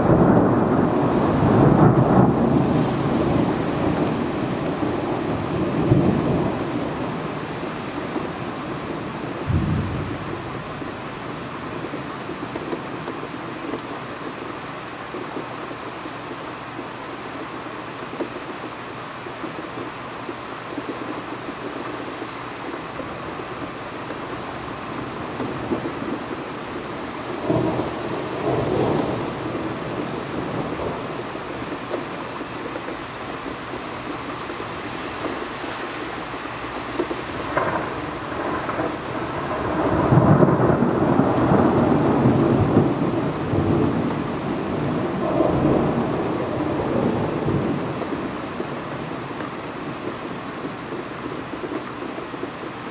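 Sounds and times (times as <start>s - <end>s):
thunder rumbling: 0.0s - 7.4s, 8.0s - 13.1s, 37.4s - 49.4s
steady rain: 0.0s - 52.9s.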